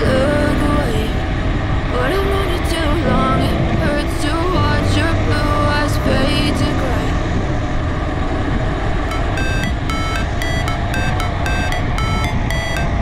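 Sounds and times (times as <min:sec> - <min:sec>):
electronic backing music: 0:09.1 - 0:13.0
short high electronic beeps: 0:09.1 - 0:13.0.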